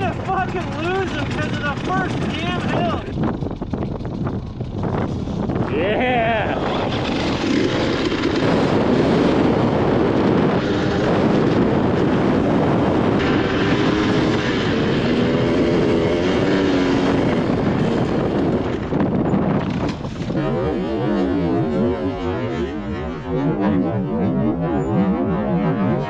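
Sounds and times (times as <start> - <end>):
dirt bike engine revving: 0.0 - 26.0.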